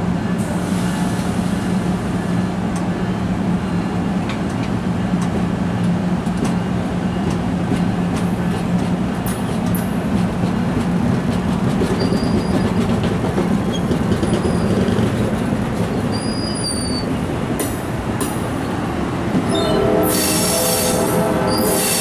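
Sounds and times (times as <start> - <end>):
train coaches rumbling: 0.0 - 22.0
high-pitched wheel squeals: 16.1 - 17.1, 19.5 - 22.0.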